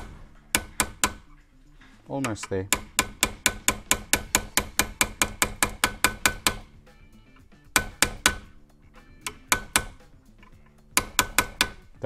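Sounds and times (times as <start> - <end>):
hammer tapping pin punch: 0.0 - 1.3, 2.2 - 6.7, 7.7 - 8.5, 9.2 - 11.9.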